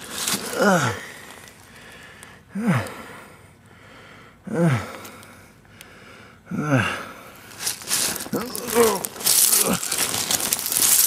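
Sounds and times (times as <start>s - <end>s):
man grunting in pain: 0.4s - 1.2s, 6.5s - 7.1s, 8.3s - 10.3s.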